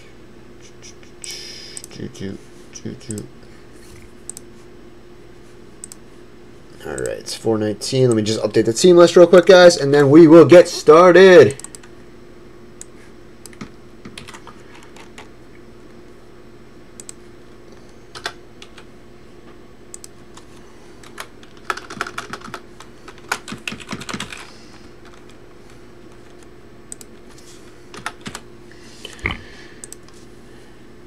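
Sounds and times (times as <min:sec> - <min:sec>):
computer keyboard typing: 0:13.5 - 0:15.3, 0:18.1 - 0:18.8, 0:21.0 - 0:25.4, 0:27.9 - 0:28.4.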